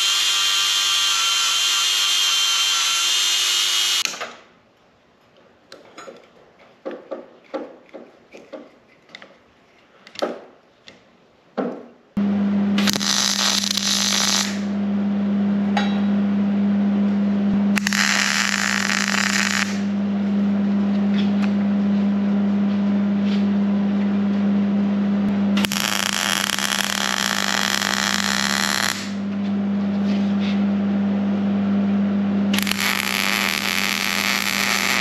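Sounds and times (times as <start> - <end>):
steady low hum: 12.2 - 35.0
welder arc crackling: 12.8 - 14.8, 17.8 - 20.0, 25.6 - 29.3, 32.6 - 35.0.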